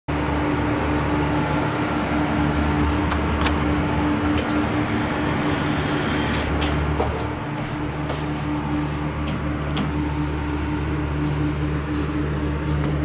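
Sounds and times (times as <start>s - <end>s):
mechanical hum with held tone: 0.1s - 13.0s.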